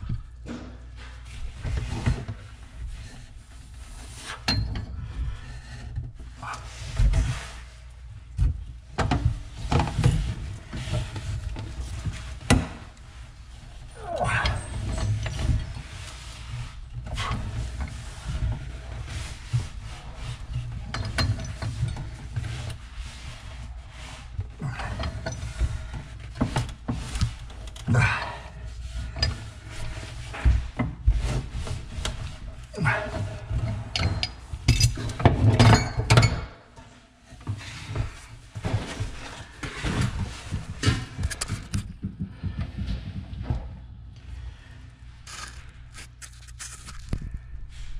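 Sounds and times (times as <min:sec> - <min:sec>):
metal scraping and clinking: 0:45.2 - 0:47.2.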